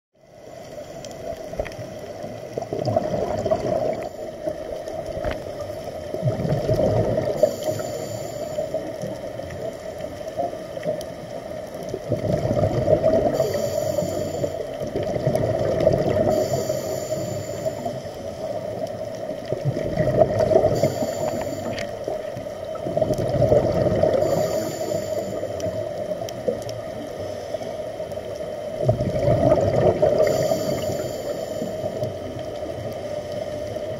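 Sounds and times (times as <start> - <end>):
underwater hum: 0.2 - 33.9
bubbling exhalation: 2.6 - 4.1, 6.2 - 7.5, 12.0 - 13.5, 15.0 - 16.4, 22.8 - 24.5, 28.8 - 30.5
regulator inhalation hiss: 7.2 - 9.1, 13.3 - 14.8, 16.2 - 18.6, 20.6 - 22.1, 24.1 - 25.9, 30.2 - 32.3.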